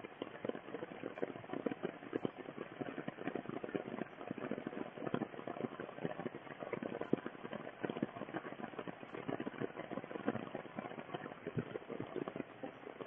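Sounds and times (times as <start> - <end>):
rain pattering on water and grass: 0.0 - 13.0.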